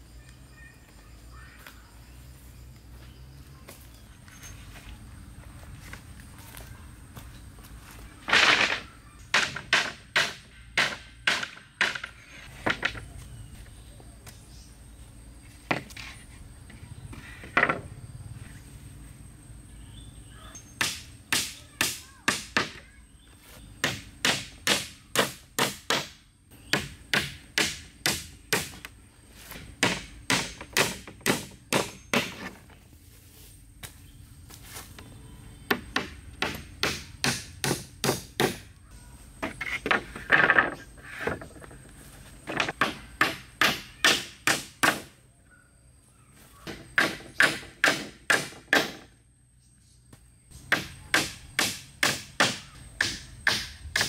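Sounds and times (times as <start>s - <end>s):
hatchet striking wooden planks: 8.3s - 13.0s, 20.8s - 22.8s, 23.8s - 28.9s, 29.6s - 32.6s, 35.7s - 38.7s, 42.5s - 45.1s, 46.7s - 49.1s, 50.7s - 54.0s.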